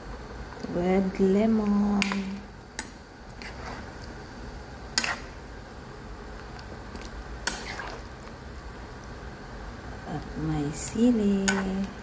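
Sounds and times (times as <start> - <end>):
pot simmering hiss: 0.0 - 12.0
metal spoon stirring a pan: 2.8 - 4.0, 4.9 - 5.4, 7.4 - 8.1.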